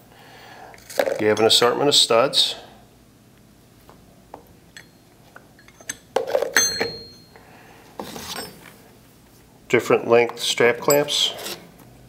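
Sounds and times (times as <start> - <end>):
metal parts clinking: 5.6 - 7.3.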